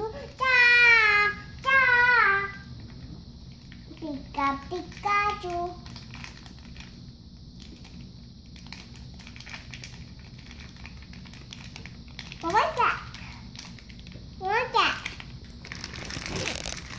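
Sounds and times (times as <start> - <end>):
plastic clicking and crinkling: 2.6 - 7.0, 7.6 - 14.3, 14.9 - 16.9.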